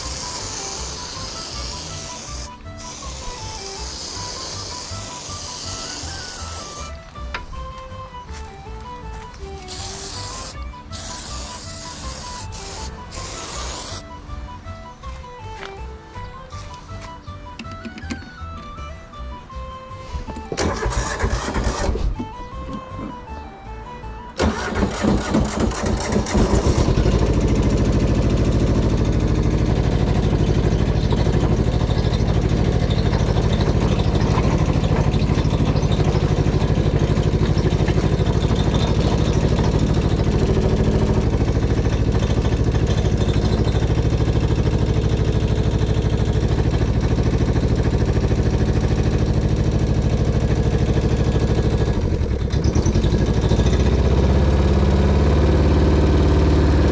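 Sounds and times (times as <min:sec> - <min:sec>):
diesel engine idling: 0:00.0 - 0:56.9
engine starter cranking: 0:20.3 - 0:23.2, 0:24.4 - 0:54.8.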